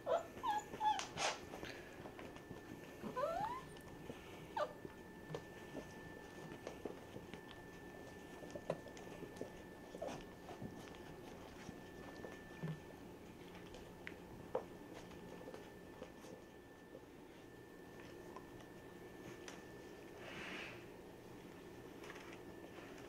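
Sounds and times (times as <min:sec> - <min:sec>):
puppies squeaking: 0:00.0 - 0:01.1, 0:03.1 - 0:03.7
dogs snuffling: 0:00.0 - 0:23.0.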